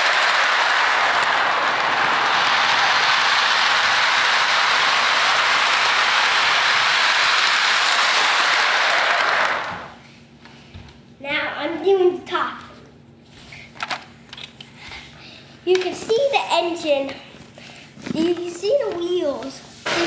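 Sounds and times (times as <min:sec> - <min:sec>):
toy train rattling on track: 0:00.0 - 0:09.9.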